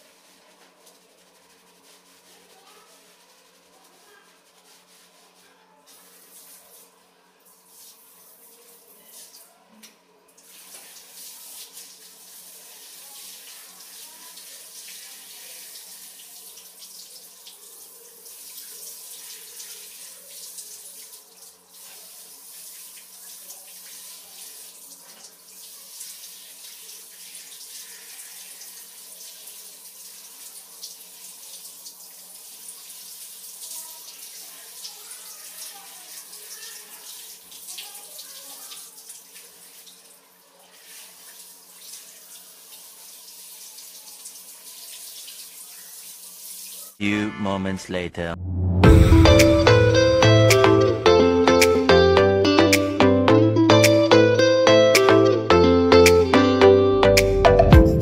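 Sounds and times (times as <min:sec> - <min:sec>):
shower spraying onto hair: 0:00.0 - 0:09.5, 0:10.4 - 0:47.0
water splashing on tiled floor: 0:05.9 - 0:09.6, 0:10.4 - 0:47.0.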